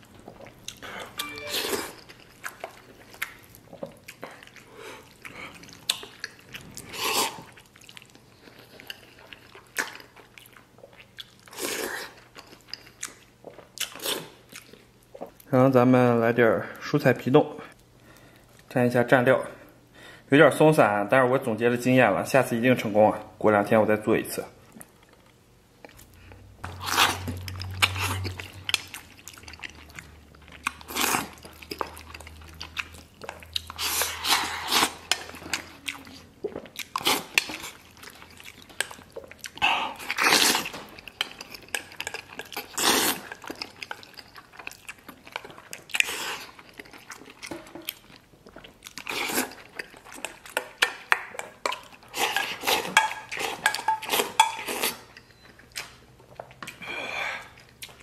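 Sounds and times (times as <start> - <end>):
wet chewing: 0.0 - 15.5, 24.7 - 58.0
slurping broth: 6.6 - 7.6, 33.6 - 35.8, 42.1 - 43.3.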